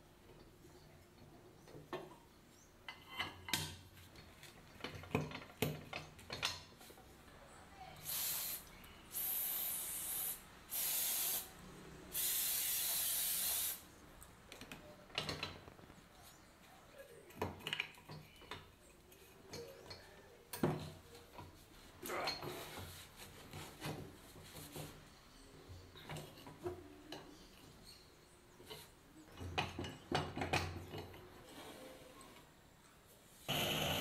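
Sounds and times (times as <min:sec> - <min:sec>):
metal parts clicking and knocking: 0:03.1 - 0:06.7
aerosol can spraying: 0:08.0 - 0:11.5, 0:12.1 - 0:13.8.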